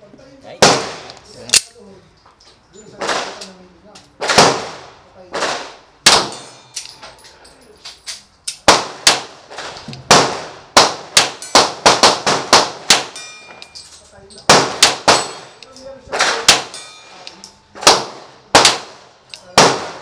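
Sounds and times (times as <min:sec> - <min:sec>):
pistol shots: 0:00.6 - 0:01.6, 0:04.2 - 0:06.6, 0:08.6 - 0:13.2, 0:14.5 - 0:16.8, 0:17.7 - 0:20.0.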